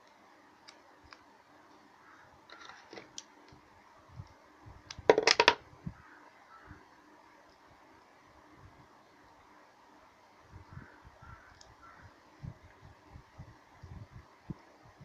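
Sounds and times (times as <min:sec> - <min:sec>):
tape rustling and clicking: 0:00.0 - 0:01.3.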